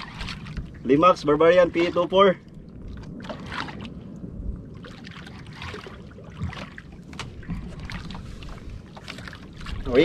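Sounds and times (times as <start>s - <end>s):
water lapping against boat hull: 0.0s - 10.0s.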